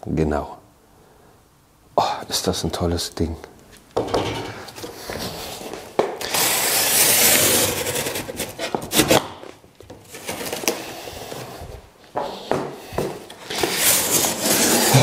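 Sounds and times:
cardboard dragged across floor: 4.7s - 9.2s, 10.1s - 15.0s.

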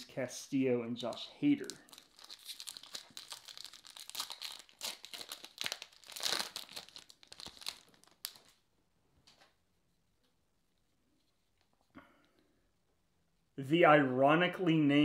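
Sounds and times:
foil wrapper tearing and crinkling: 1.6s - 8.6s.

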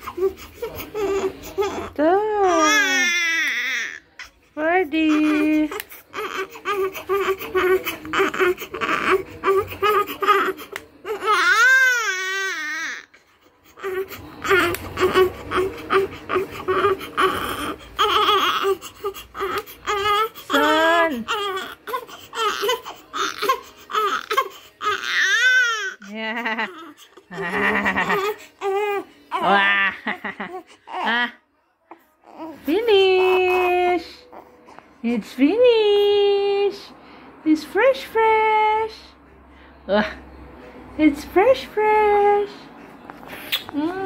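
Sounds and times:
newborn baby crying: 0.0s - 4.4s, 5.0s - 29.6s.

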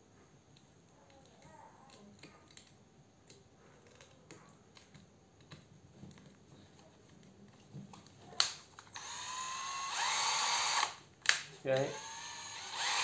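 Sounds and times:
drill motor whine: 9.0s - 11.0s, 11.8s - 13.0s.

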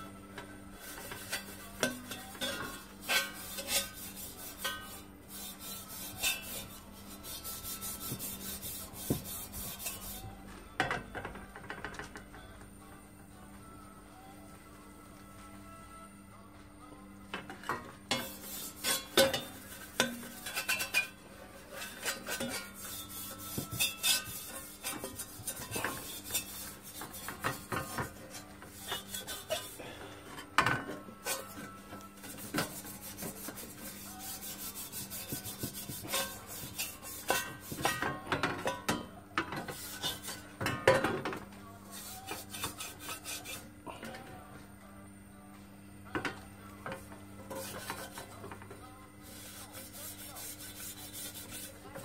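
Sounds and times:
scrubber pad scraping metal pan: 0.8s - 10.4s, 17.7s - 41.1s, 41.9s - 43.7s, 46.9s - 48.6s, 49.2s - 52.0s.

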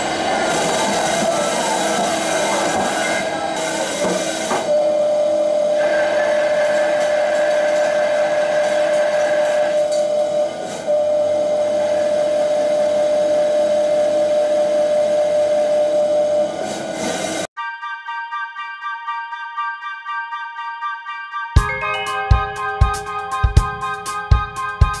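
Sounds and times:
cnc machine whining: 0.0s - 17.2s.

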